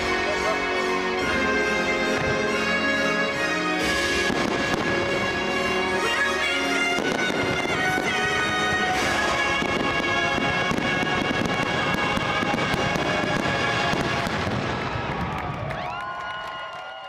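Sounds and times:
fireworks crackling and popping: 0:00.0 - 0:16.6.

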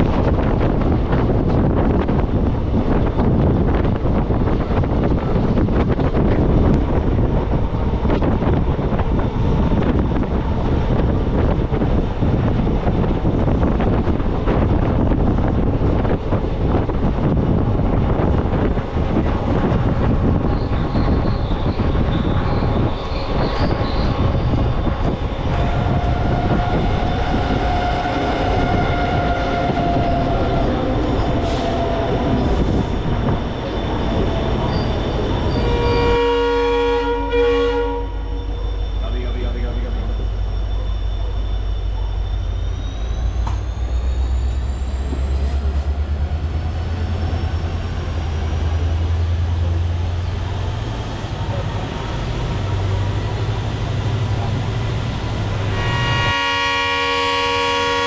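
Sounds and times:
train wheels rumbling on track: 0:00.0 - 0:58.0
high squealing of wheels: 0:19.8 - 0:36.3, 0:38.2 - 0:56.2.

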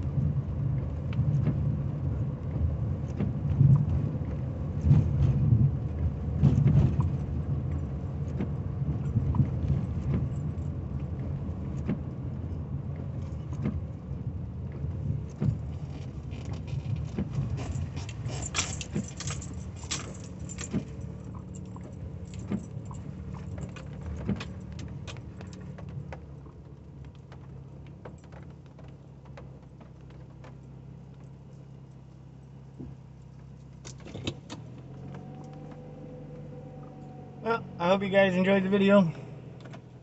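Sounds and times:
tyres rolling on wet road: 0:00.0 - 0:31.4
car engine humming: 0:00.0 - 0:40.0
sharp clicks and rattles: 0:14.8 - 0:26.3.

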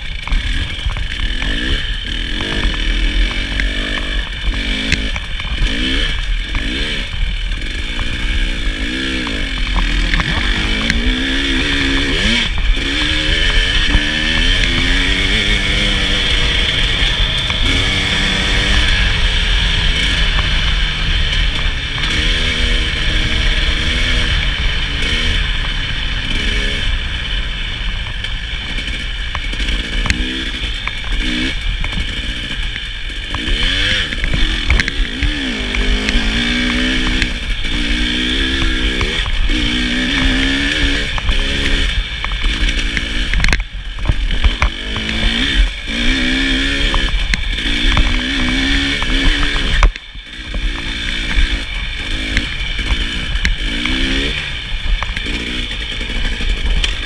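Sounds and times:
constant rushing noise: 0:00.0 - 0:57.0
two-stroke motorcycle engine revving: 0:00.0 - 0:57.0.

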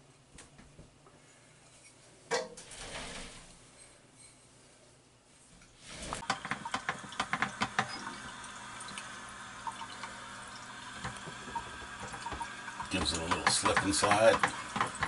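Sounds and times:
faucet running into basin: 0:06.2 - 0:15.0.

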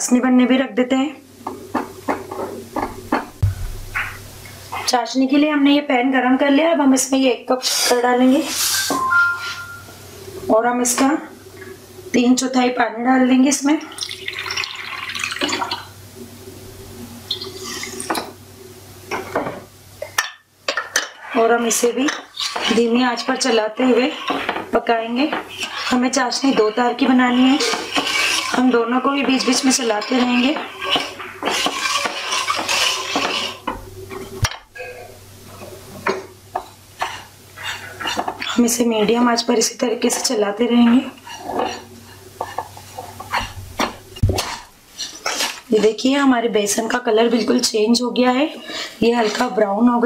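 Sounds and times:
sharp knocks: 0:02.8 - 0:04.2
spatula scraping sugar in pan: 0:21.2 - 0:33.7, 0:41.0 - 0:43.6, 0:44.4 - 0:46.0
wooden spatula stirring flour in pan: 0:21.2 - 0:34.2, 0:37.0 - 0:38.8, 0:40.0 - 0:46.1.

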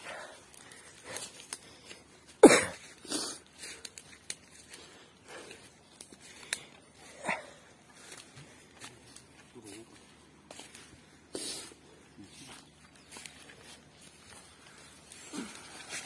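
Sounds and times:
footsteps crunching dry leaves: 0:07.9 - 0:16.0.

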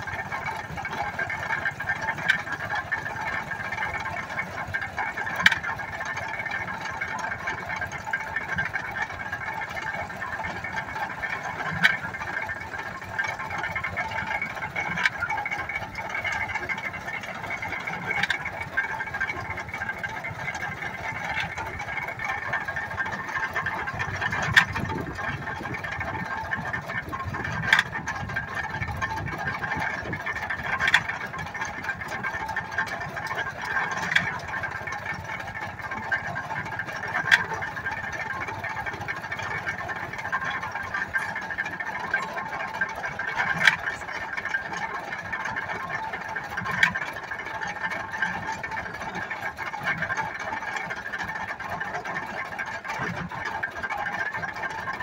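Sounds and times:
baler mechanical clatter: 0:00.0 - 0:55.0.

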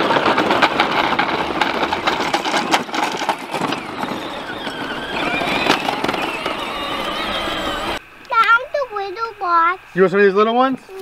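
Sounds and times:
plastic wheels crunching on gravel: 0:00.0 - 0:08.0
electric motor whine: 0:02.8 - 0:08.0.

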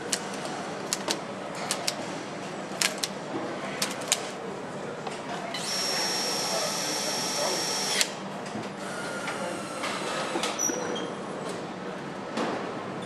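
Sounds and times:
power screwdriver whine: 0:07.1 - 0:08.1.

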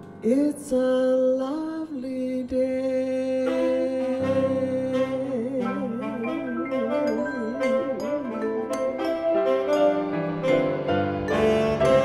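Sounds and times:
jazz band playing: 0:03.6 - 0:12.0
vibraphone: 0:06.2 - 0:12.0.

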